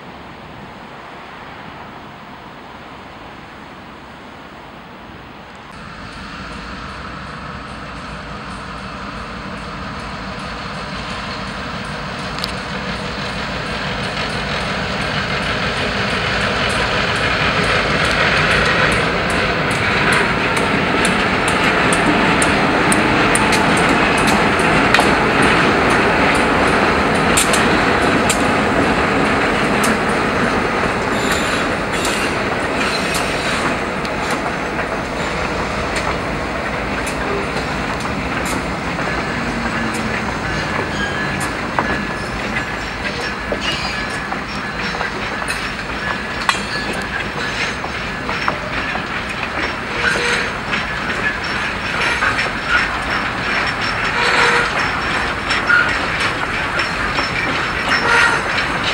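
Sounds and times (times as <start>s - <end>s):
locomotive: 5.5s - 58.9s
train wheels clacking on rails: 5.8s - 58.9s
wheel squeal: 31.1s - 33.7s, 39.2s - 58.9s.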